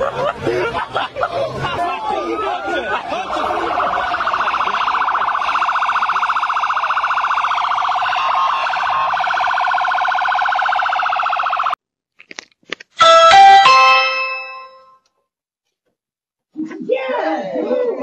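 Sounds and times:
police siren warbling: 1.5s - 11.8s
electronic doorbell chime: 13.0s - 15.0s.

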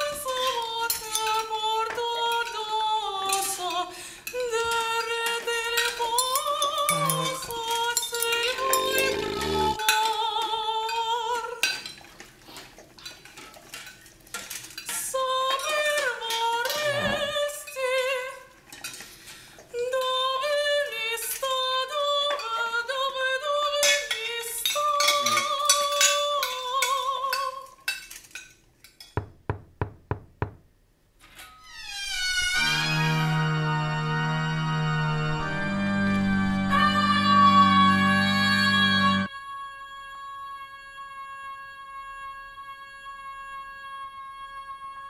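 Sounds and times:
operatic singing: 0.4s - 10.0s, 16.7s - 17.6s.

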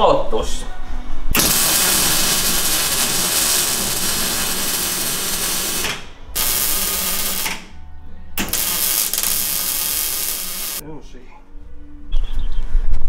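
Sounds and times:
crackling buzz of welding arc: 1.4s - 7.7s, 8.4s - 10.8s.

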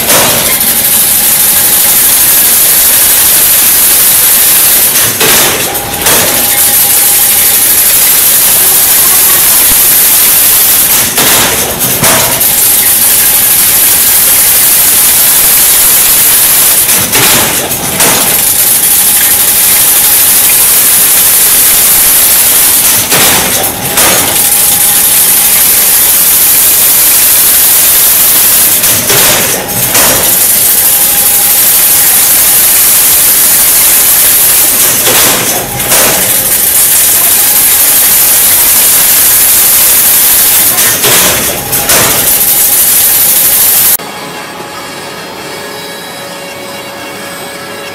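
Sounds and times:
heavy clattering machine stroke: 0.0s - 44.0s
machine hissing rush: 0.0s - 44.0s.

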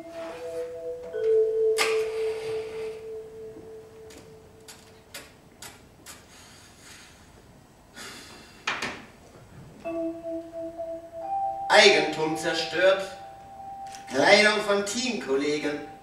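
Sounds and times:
held mallet instrument note: 0.0s - 4.9s, 9.8s - 14.8s
held musical tones: 0.0s - 5.4s, 9.8s - 16.0s.

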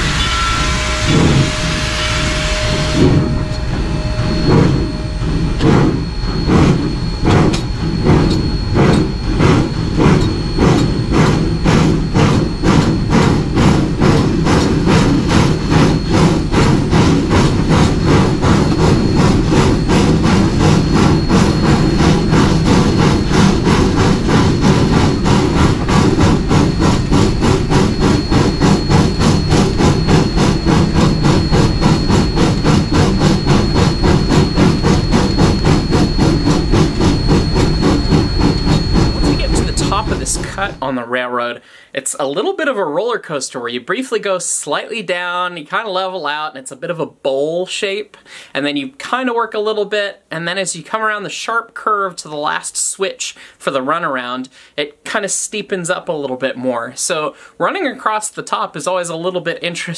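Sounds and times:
loud steam hiss: 0.0s - 4.5s
steam locomotive chuffing: 0.0s - 45.5s.

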